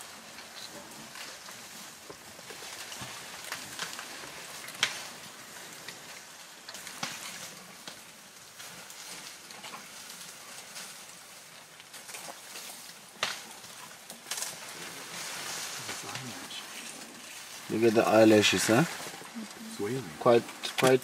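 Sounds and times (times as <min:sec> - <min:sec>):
dry brush crackling and snapping: 0:00.0 - 0:21.0
twigs breaking: 0:02.4 - 0:08.0, 0:08.9 - 0:19.6, 0:20.5 - 0:21.0
leaves tearing: 0:08.8 - 0:21.0.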